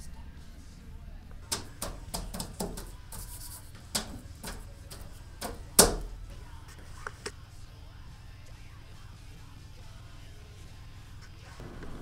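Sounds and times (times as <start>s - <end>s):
hands patting paper: 1.5s - 5.6s
hands rubbing paper: 2.0s - 4.6s.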